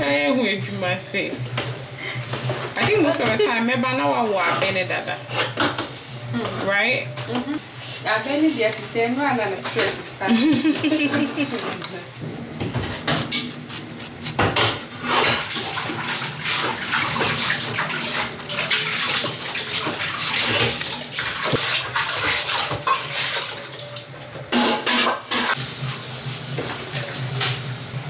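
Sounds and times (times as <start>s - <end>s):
water running and splashing: 15.0s - 24.2s.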